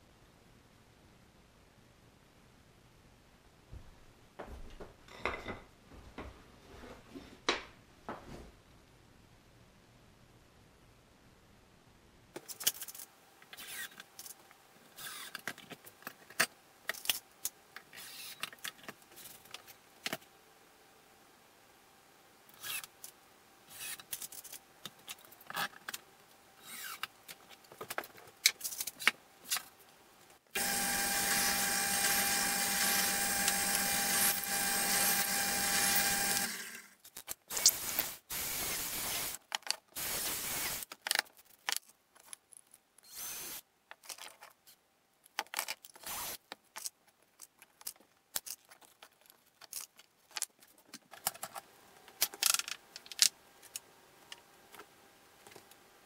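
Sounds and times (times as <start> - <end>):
cordless drill boring into wood: 30.6 - 36.8, 43.1 - 43.6, 46.0 - 46.4.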